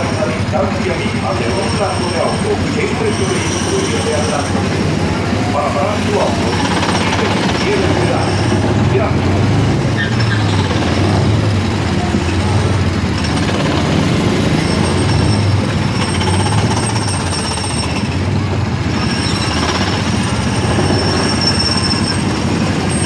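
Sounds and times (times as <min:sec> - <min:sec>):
small gasoline engine running: 0:00.0 - 0:23.0
surrounding car engines: 0:00.0 - 0:23.0.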